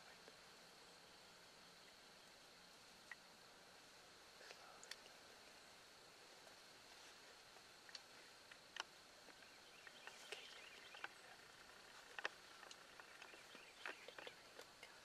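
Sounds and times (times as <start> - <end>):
faint background hiss: 0.0 - 15.0
soft clicks and ticks: 7.8 - 15.0.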